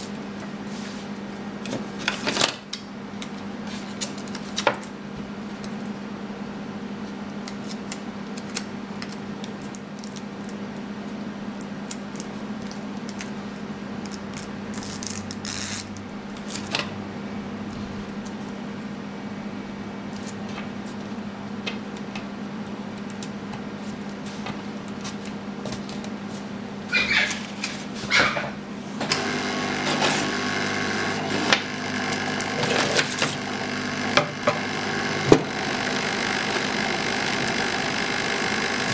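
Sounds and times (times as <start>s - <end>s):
hot air blower rushing: 29.0s - 38.9s.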